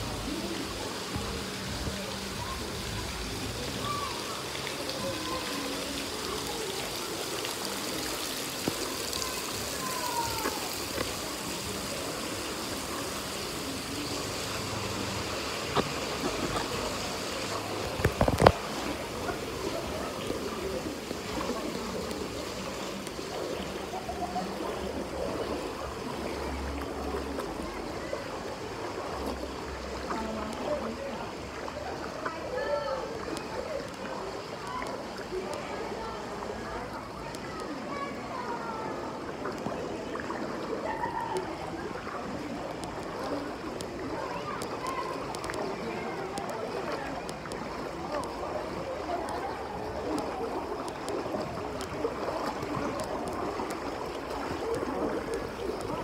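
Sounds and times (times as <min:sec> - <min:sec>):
faint voices: 0:00.0 - 0:56.0
water rushing and splashing: 0:00.0 - 0:56.0
water spout pouring: 0:02.4 - 0:30.1.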